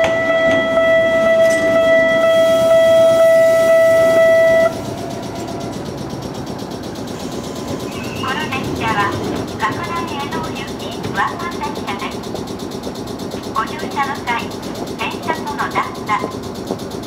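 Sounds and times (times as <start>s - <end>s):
level crossing warning bell: 0.0s - 5.9s, 8.2s - 12.3s
electric train rumbling: 0.0s - 17.0s.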